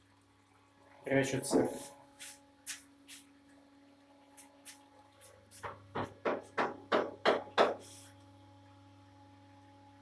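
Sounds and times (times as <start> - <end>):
extractor fan hum: 0.0 - 10.0.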